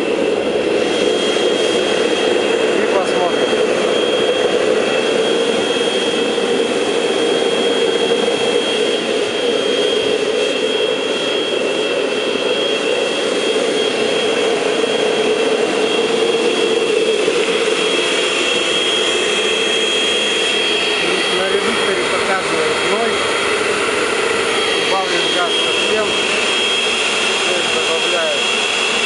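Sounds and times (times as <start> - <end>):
forge burner roaring: 0.0 - 29.0
high whine of vacuum blower: 0.0 - 29.0.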